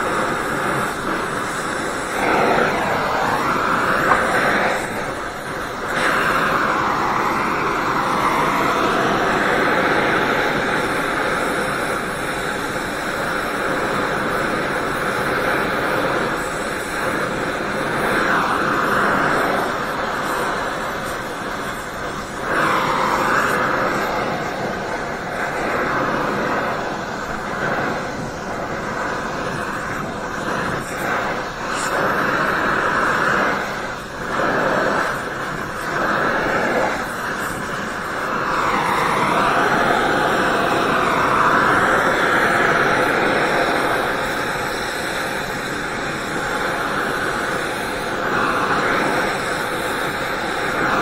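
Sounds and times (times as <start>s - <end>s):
welding torch flame hissing: 0.0s - 51.0s.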